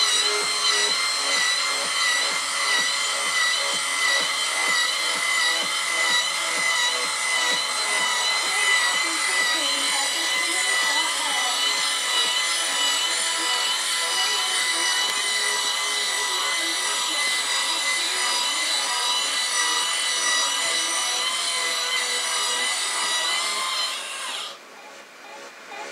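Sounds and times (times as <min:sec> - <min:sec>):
electric motor whining: 0:00.0 - 0:24.6.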